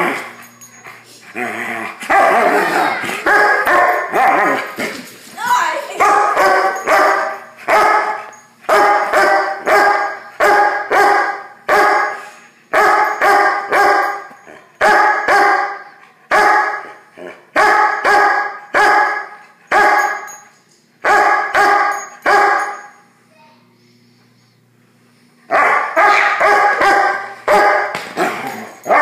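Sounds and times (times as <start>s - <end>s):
large dog barking: 2.1s - 4.6s, 6.0s - 14.2s, 14.8s - 16.9s, 17.6s - 20.2s, 21.0s - 22.7s, 25.5s - 29.0s.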